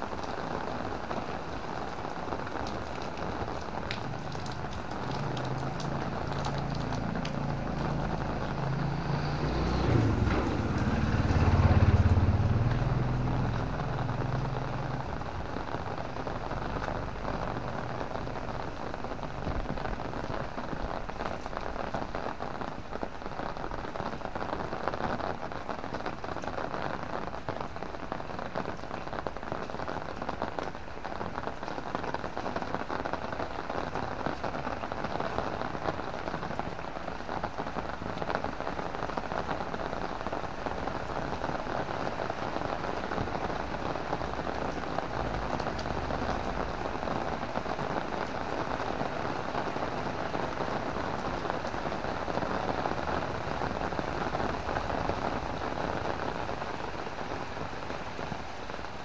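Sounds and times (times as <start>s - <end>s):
heavy rain on an umbrella: 0.0s - 59.0s
low rumble: 6.1s - 18.2s.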